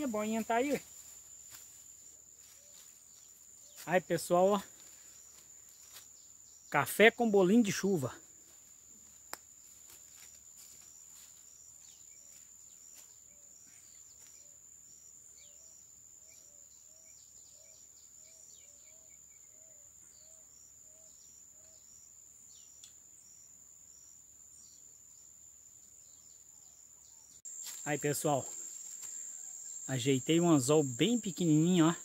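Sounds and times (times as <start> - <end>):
insect trill: 0.0 - 32.0.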